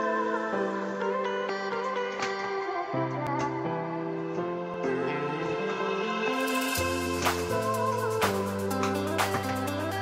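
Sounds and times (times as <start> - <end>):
gentle instrumental music: 0.0 - 10.0.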